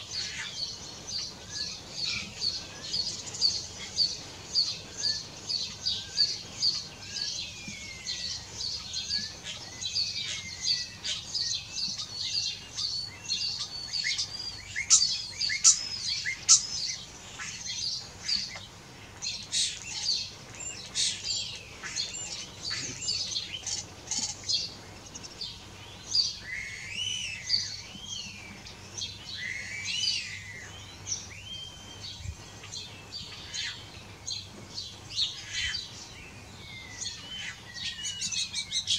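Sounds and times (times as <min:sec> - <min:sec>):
starlings singing: 0:00.0 - 0:38.9.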